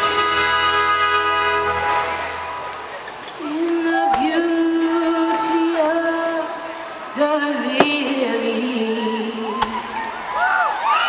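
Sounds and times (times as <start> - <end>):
music: 0.0 - 2.7
person singing long notes: 3.4 - 9.7.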